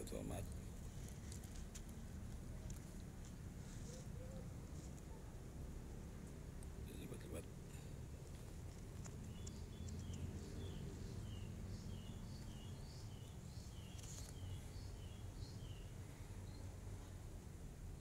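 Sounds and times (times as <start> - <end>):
small bird chirping: 6.9 - 17.2.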